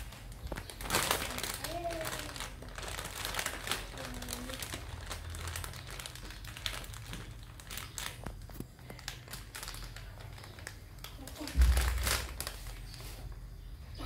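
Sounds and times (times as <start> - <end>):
plastic bag crinkling: 0.0 - 13.4.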